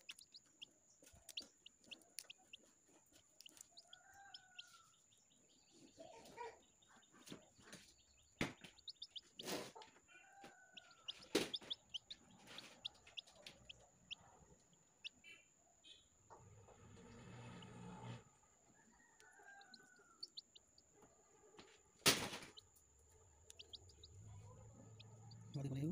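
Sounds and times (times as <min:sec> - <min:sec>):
eggshell cracking clicks: 0:00.0 - 0:02.5, 0:03.4 - 0:03.9, 0:23.4 - 0:24.1
chick chirping: 0:00.0 - 0:16.4, 0:19.2 - 0:20.9, 0:22.1 - 0:25.9
chicken calling: 0:08.6 - 0:14.2.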